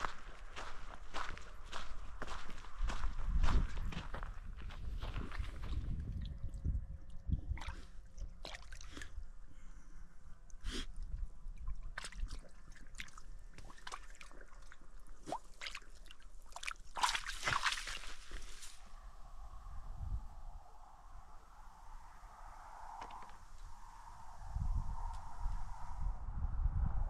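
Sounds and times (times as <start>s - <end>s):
dog sloshing through mud: 7.5s - 9.2s, 11.6s - 18.8s
water splashing: 11.6s - 18.8s.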